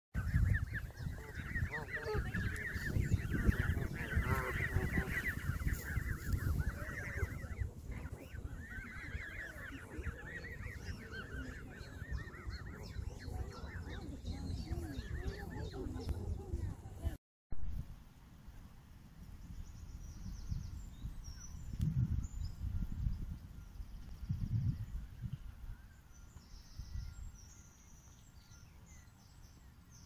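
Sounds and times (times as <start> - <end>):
goslings peeping: 0.2 - 16.6.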